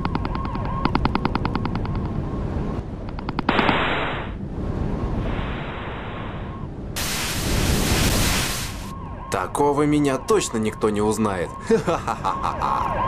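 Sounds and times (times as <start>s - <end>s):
burst of hiss: 7.0s - 8.9s.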